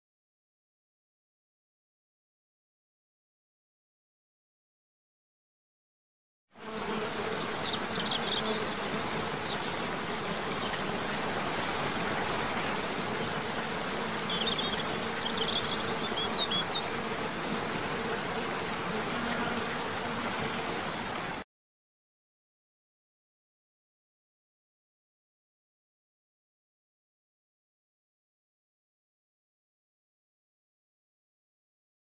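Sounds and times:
buzzing insects: 6.6s - 21.4s.

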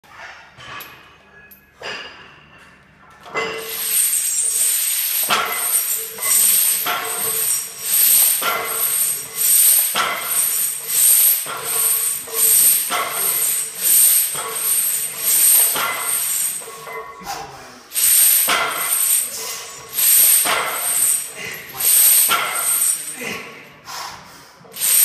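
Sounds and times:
chains clinking: 3.4s - 17.2s, 17.9s - 23.4s, 24.8s - 25.0s.

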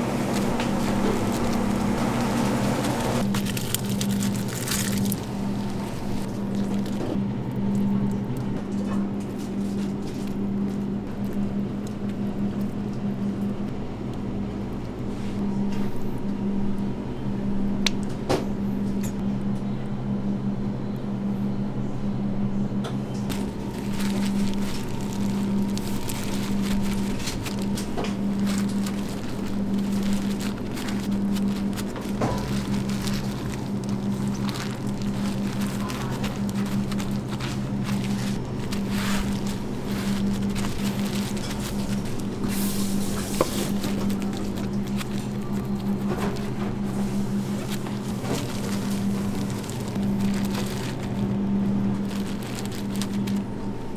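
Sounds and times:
plastic gloves rustling: 0.0s - 7.2s, 23.3s - 53.9s
electric motor hum: 0.0s - 7.4s, 23.3s - 53.9s.

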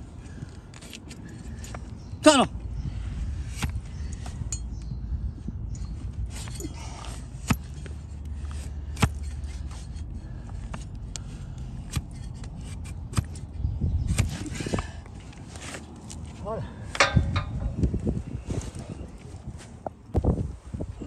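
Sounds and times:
steady low rumble: 0.0s - 21.0s
knife scraping hoof horn: 6.3s - 13.5s.

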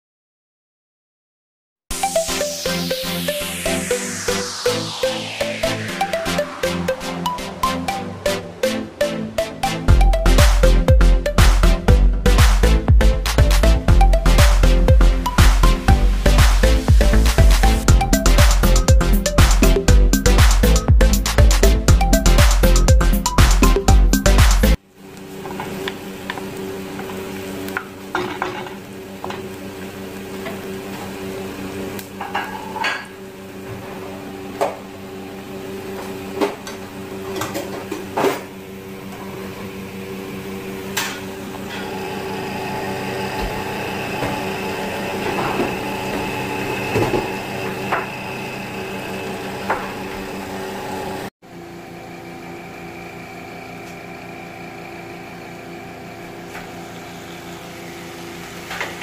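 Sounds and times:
onions frying sizzle: 25.0s - 32.2s.

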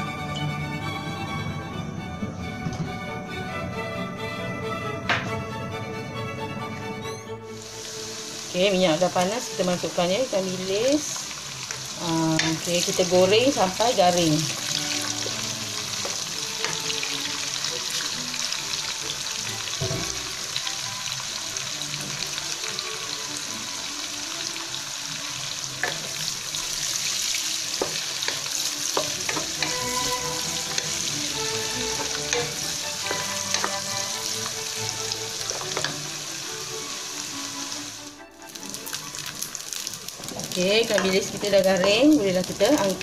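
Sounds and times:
anchovies sizzling in hot oil: 7.5s - 43.0s
wooden spatula stirring: 27.8s - 34.7s.

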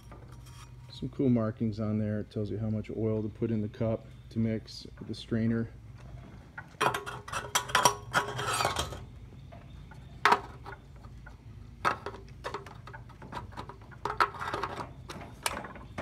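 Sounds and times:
metal cap clicks and scrapes: 6.8s - 9.1s.

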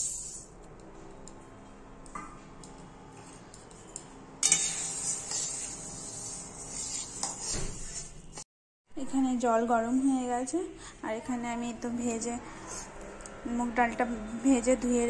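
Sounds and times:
lentils scraping in pan: 4.4s - 8.4s.

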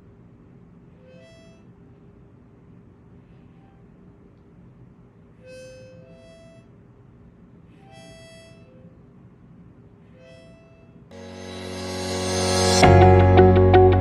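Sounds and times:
harmonica notes: 1.0s - 1.8s, 5.4s - 6.8s, 7.7s - 9.0s, 10.1s - 14.0s.

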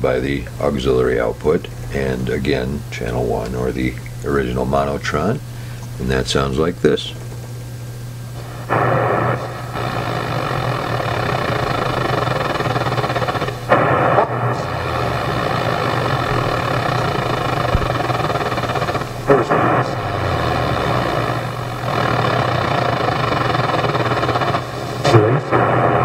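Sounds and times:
hissing buzzing radio drone: 0.0s - 26.0s.

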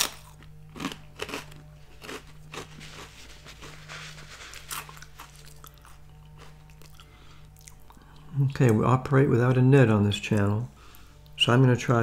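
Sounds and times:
person chewing crunchy snack: 0.0s - 8.3s.

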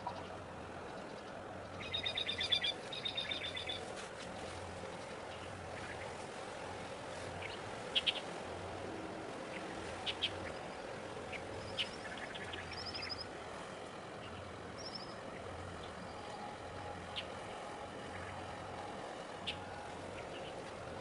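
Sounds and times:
bird trills: 1.8s - 3.8s, 8.0s - 8.2s
small birds chirping: 1.8s - 3.8s, 7.4s - 8.3s.

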